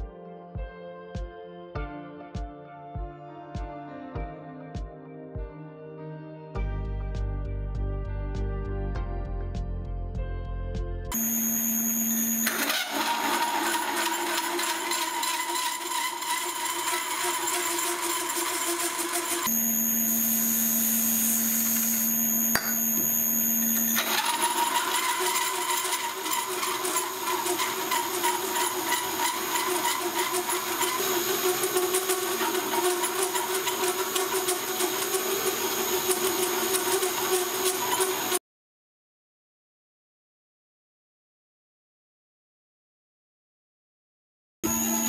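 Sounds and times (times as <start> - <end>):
machine hum with high whine: 11.1 - 38.4, 44.6 - 45.0
hole saw cutting steel: 11.2 - 38.4, 44.6 - 45.0.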